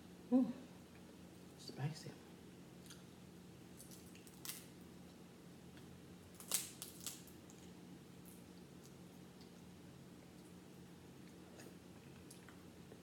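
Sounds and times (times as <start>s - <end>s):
low steady hum: 0.0s - 13.0s
shellfish shells cracking: 3.8s - 4.7s, 6.4s - 7.3s.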